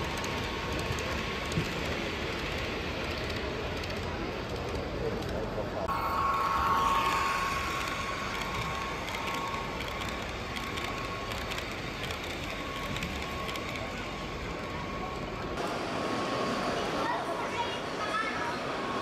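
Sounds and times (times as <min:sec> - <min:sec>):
model train wheels clicking: 0:00.0 - 0:05.8, 0:06.7 - 0:15.6.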